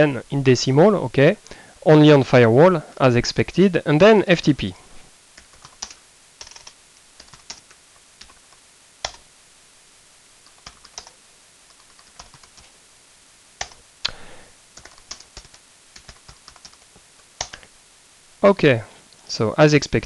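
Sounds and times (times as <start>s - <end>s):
typing on a computer keyboard: 5.4s - 9.2s, 10.4s - 12.7s, 13.6s - 13.8s, 14.8s - 17.6s.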